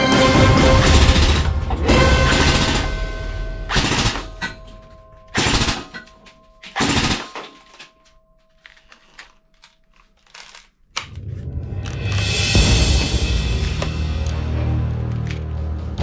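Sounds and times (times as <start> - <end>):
toy rifle firing bursts: 2.1 - 3.0, 3.7 - 4.4, 5.4 - 6.1, 6.7 - 7.9.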